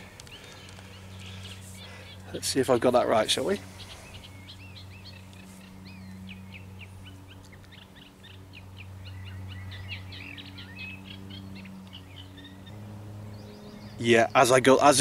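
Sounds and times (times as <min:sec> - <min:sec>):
small birds chirping: 0:00.0 - 0:15.0
faint low hum: 0:03.6 - 0:15.0.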